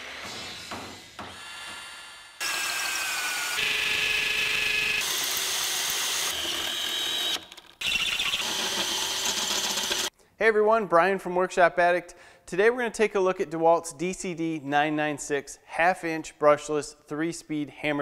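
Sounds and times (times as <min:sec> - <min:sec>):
hammer drill whining: 0:01.3 - 0:10.1.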